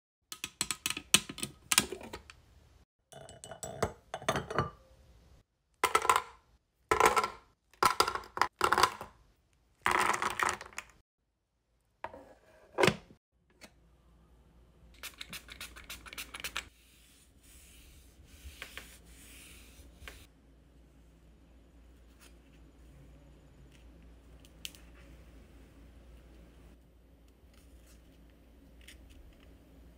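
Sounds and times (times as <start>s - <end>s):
rubbing and scratching: 15.0s - 20.3s.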